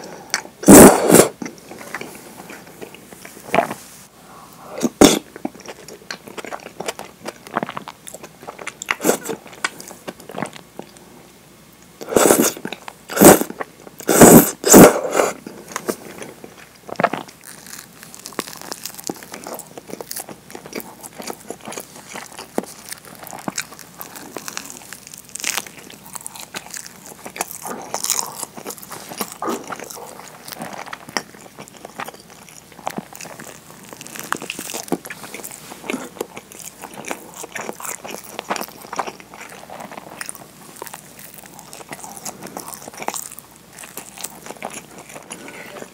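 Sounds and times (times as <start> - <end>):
chewing and biting: 5.0 - 11.0, 15.6 - 45.9.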